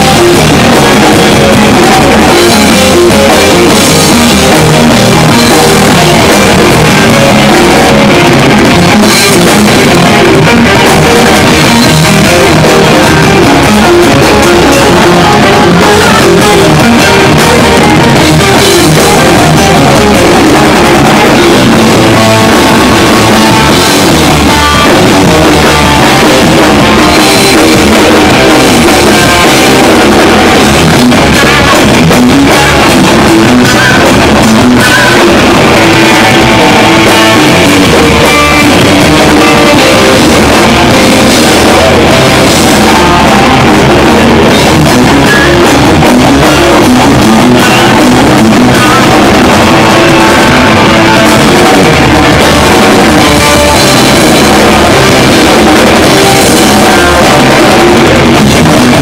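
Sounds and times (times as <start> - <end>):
bass guitar: 0.0 - 59.0
distorted electric guitars: 0.0 - 59.0
drum kit: 0.0 - 59.0.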